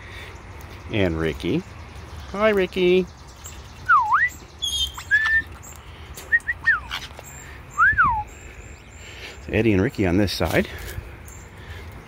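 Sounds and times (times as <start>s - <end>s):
short bird chirps: 3.4s - 8.4s
parrots whistling: 3.9s - 5.6s, 6.3s - 7.1s.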